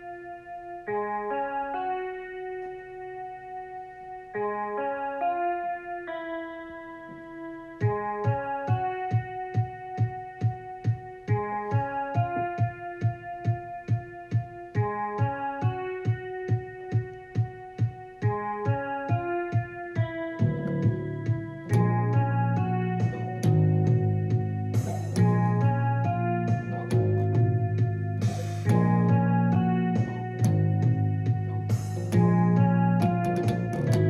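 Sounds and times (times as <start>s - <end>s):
keyboard playing repeating notes: 0.0s - 34.0s
steady beat: 7.1s - 34.0s
low bass layer: 20.4s - 34.0s.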